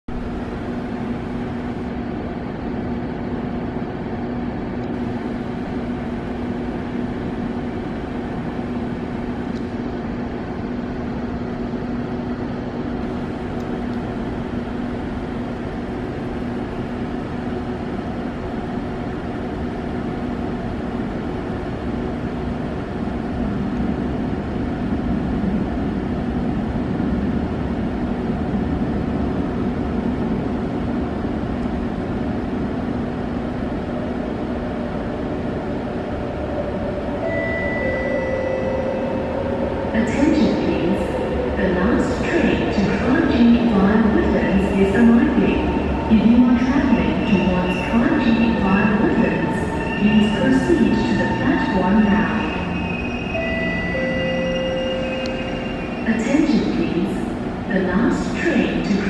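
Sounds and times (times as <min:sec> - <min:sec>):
ventilation drone with humming tones: 0:00.1 - 0:59.0
low rumble: 0:23.1 - 0:57.8.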